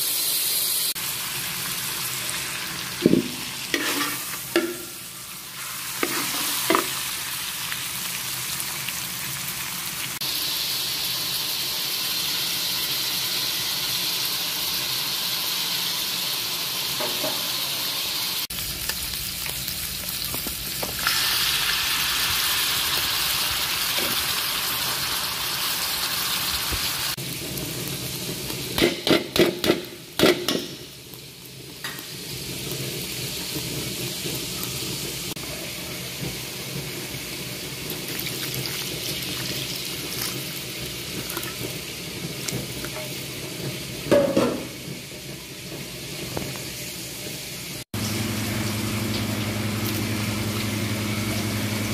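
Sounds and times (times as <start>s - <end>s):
meat sizzling in oil: 0.0s - 51.9s
metal knocking on pan: 3.0s - 5.0s, 28.8s - 30.8s, 44.1s - 44.8s
spatula stirring in pan: 3.3s - 5.0s, 5.8s - 7.0s.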